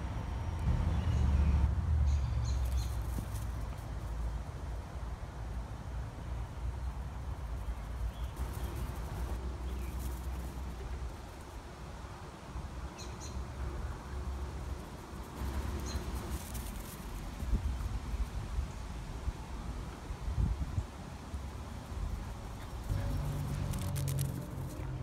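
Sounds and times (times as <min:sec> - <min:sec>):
wind noise on microphone: 0:14.6 - 0:21.0.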